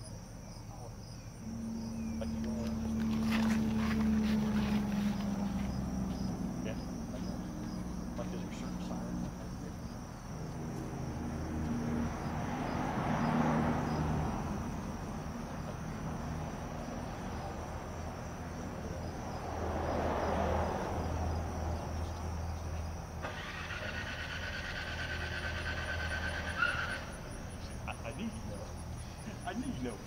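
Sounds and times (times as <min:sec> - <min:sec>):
steady low hum: 0:00.0 - 0:12.4
insects chirping: 0:00.0 - 0:30.0
vehicles passing by: 0:00.0 - 0:30.0.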